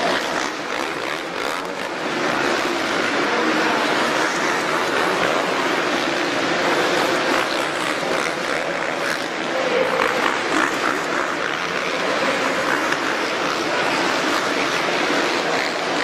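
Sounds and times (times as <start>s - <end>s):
arena crowd noise: 0.0s - 16.0s
dirt bike engines running: 0.0s - 16.0s.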